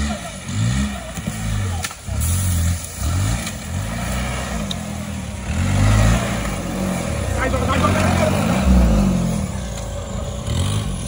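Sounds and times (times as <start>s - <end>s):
jeep engine revving: 0.0s - 11.0s.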